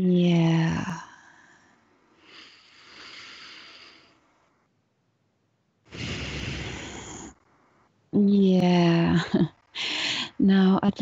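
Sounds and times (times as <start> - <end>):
woman breathing deeply: 1.2 - 4.4, 5.9 - 7.4, 9.8 - 10.3.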